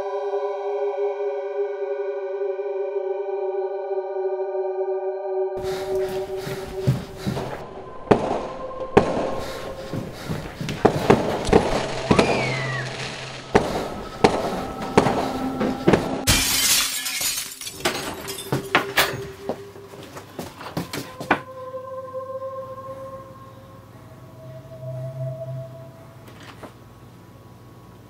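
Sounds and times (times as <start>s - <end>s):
tense soundtrack of held tones: 0.0s - 16.3s, 18.7s - 27.7s
sharp hits: 5.6s - 17.6s
loud crash: 8.0s - 18.1s.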